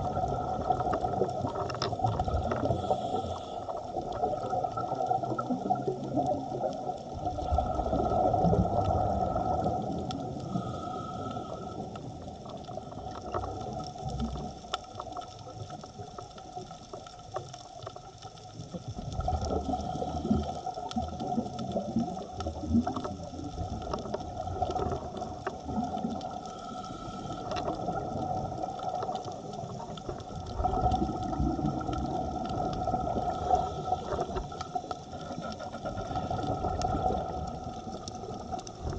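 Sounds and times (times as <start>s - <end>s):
underwater bubbles gurgling: 0.0s - 38.9s
faint hum: 2.4s - 4.4s, 7.4s - 13.5s, 25.8s - 28.8s.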